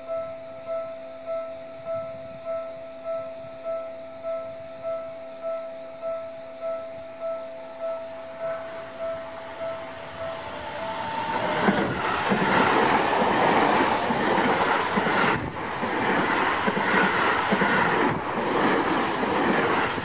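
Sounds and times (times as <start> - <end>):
level crossing warning bell: 0.0 - 18.2
train passing: 7.8 - 20.0
wheels clattering on rails: 10.7 - 20.0.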